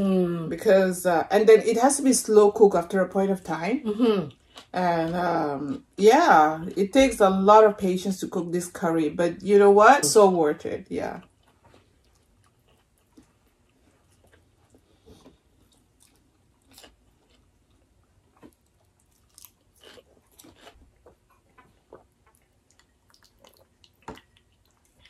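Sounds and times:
people chewing food: 3.9s - 5.8s, 11.2s - 25.0s.

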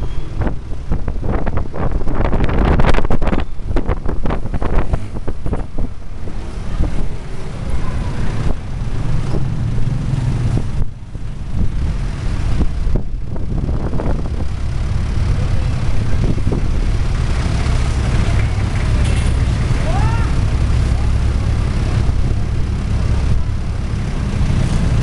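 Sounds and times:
wind on microphone: 0.0s - 7.4s, 8.2s - 15.0s, 15.6s - 18.7s
vehicle engine and road rumble: 0.0s - 25.0s.

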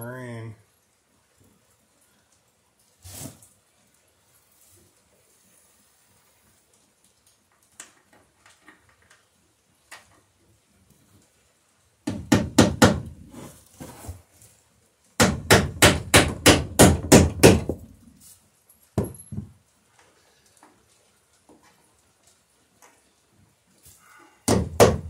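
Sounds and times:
hammer driving nails into wood: 12.0s - 13.3s, 15.2s - 17.9s, 24.4s - 25.0s.

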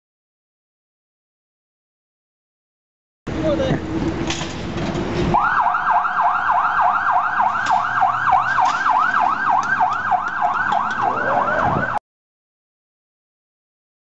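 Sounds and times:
vehicle moving off: 3.3s - 12.0s
electronic siren yelping: 5.3s - 12.0s.

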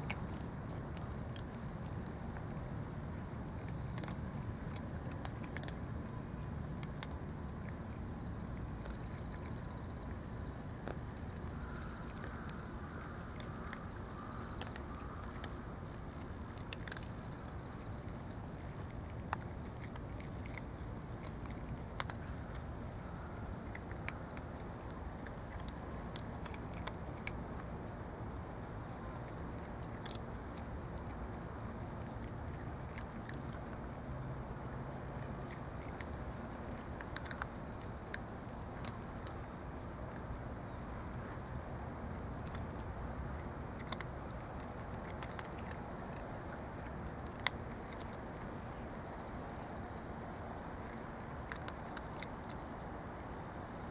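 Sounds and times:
cats crunching kibble: 0.0s - 53.9s
high insect trill: 0.0s - 53.9s
low outdoor background: 0.0s - 53.9s.

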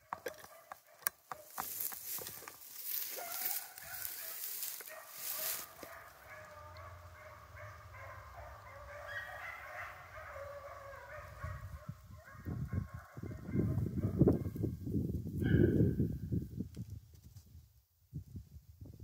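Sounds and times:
distant hounds baying: 2.9s - 14.6s.

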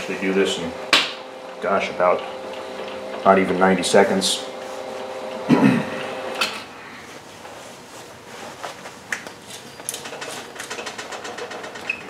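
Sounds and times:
metal clicks and rattles: 9.8s - 12.0s.

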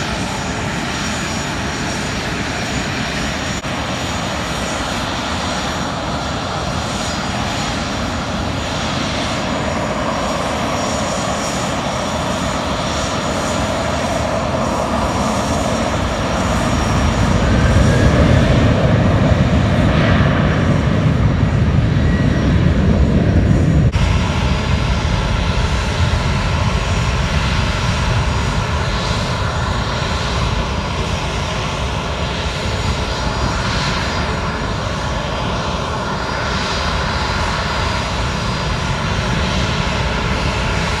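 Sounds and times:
jet engines running: 0.0s - 41.0s.

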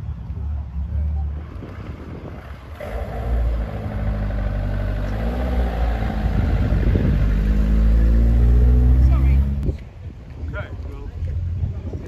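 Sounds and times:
car engine revving pulling away: 1.5s - 9.7s.

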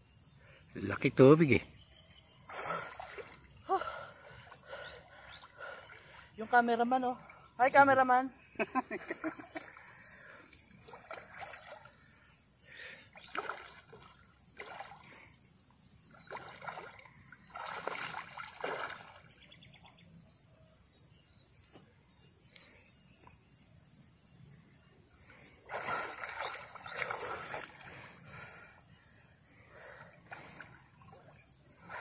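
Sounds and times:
water splashing and sloshing: 2.4s - 7.5s, 9.2s - 15.4s, 16.0s - 19.5s, 25.3s - 28.6s, 29.8s - 32.0s.

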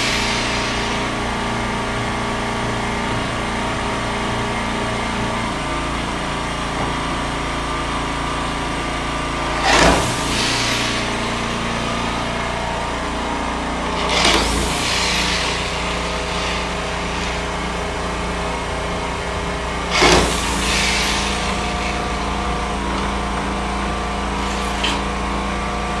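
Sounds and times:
electric drill driving screws: 0.0s - 4.7s, 9.4s - 13.2s, 13.9s - 25.7s
steady machine hum: 0.0s - 26.0s.

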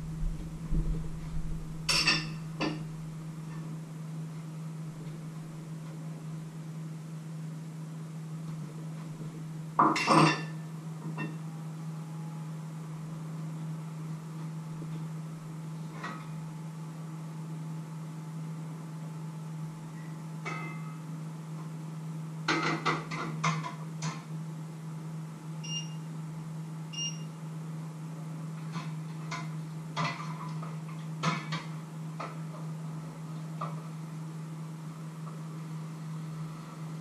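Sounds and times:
steady low hum: 0.0s - 37.0s
pots and pans clanking: 9.8s - 10.6s.

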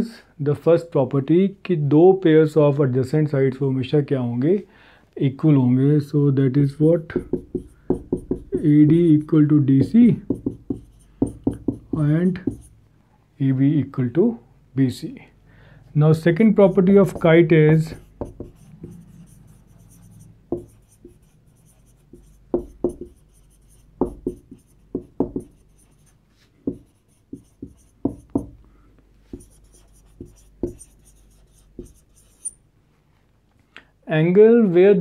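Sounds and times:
marker writing on whiteboard: 6.8s - 12.8s, 16.6s - 28.6s, 29.2s - 32.6s.

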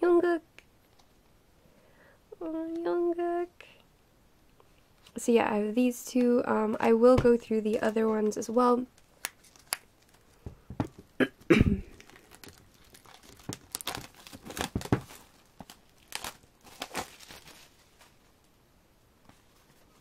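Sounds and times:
plastic sleeve crinkling: 7.4s - 11.2s, 11.8s - 18.6s.

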